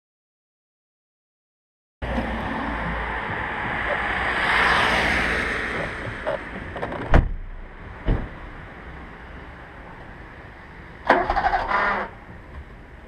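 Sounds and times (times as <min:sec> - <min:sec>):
rushing noise: 0:02.0 - 0:13.0
car door clunks: 0:06.8 - 0:08.5.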